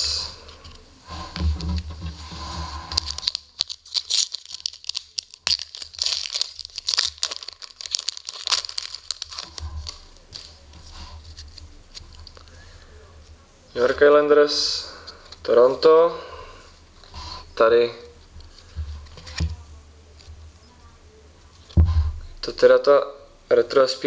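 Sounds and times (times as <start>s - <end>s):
plastic foil wrapper tearing: 2.9s - 10.6s.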